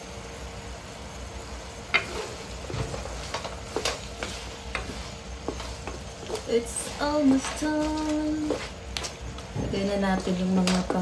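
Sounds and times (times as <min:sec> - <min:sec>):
faint sizzle: 0:00.0 - 0:11.0
wooden spatula scraping pan: 0:01.9 - 0:10.0.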